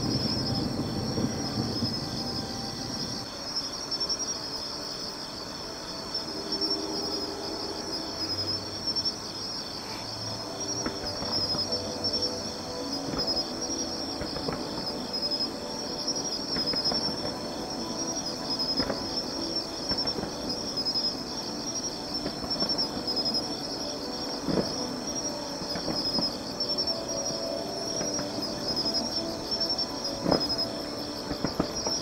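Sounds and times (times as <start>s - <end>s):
distant fireworks thuds: 0.0s - 3.2s, 13.0s - 15.2s, 16.4s - 21.1s, 24.3s - 27.1s, 27.9s - 32.0s
crickets chirping: 0.0s - 32.0s.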